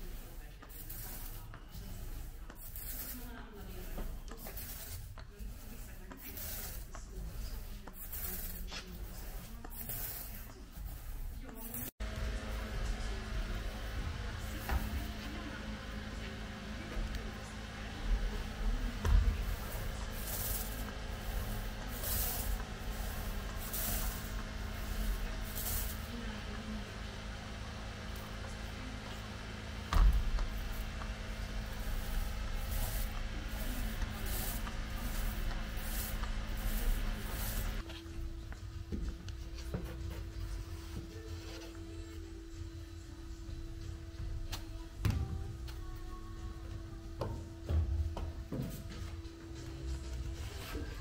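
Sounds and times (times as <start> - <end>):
spreader scrubbing over wet resin: 0.0 - 38.0
low workshop hum: 0.0 - 51.0.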